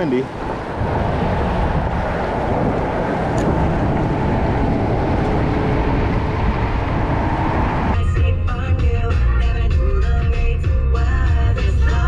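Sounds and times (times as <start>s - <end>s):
wind buffeting microphone: 0.0s - 8.3s.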